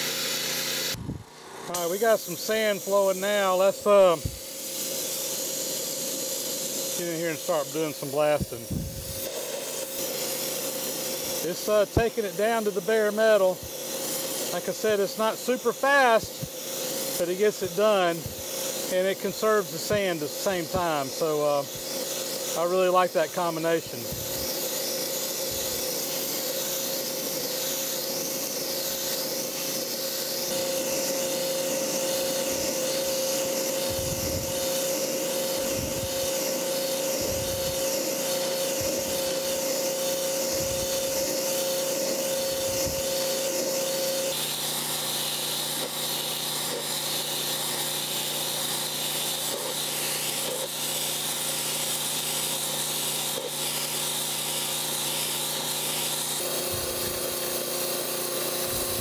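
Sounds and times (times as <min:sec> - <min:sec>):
water and sand jet hissing on metal: 0:00.0 - 0:59.0
steady whine: 0:00.8 - 0:44.4, 0:56.4 - 0:59.0.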